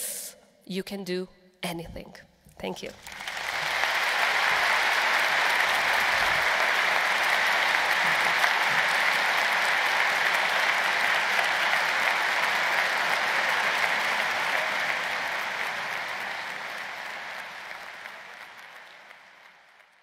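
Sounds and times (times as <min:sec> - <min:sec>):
audience applauding: 0:02.9 - 0:20.0.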